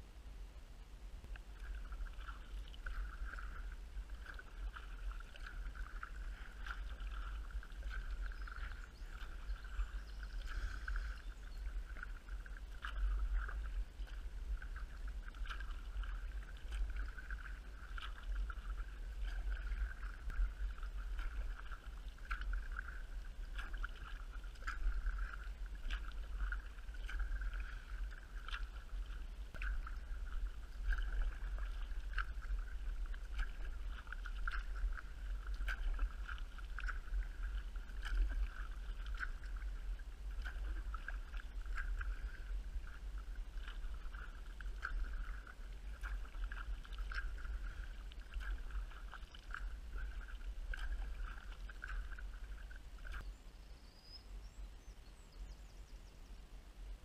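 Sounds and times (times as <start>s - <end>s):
water lapping along hull: 0.0s - 57.0s
paddle splashes and drips: 1.2s - 54.4s.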